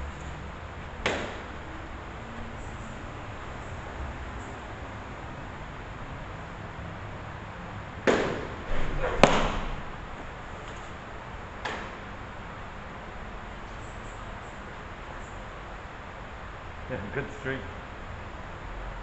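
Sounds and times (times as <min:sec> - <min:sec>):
ball smacking into catcher's mitt: 0:01.0 - 0:01.4, 0:08.1 - 0:09.7.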